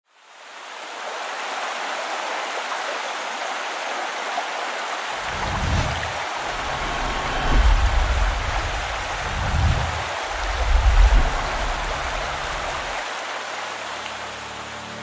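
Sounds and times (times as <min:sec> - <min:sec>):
rushing water: 0:00.2 - 0:15.0
low rumble: 0:05.2 - 0:13.0.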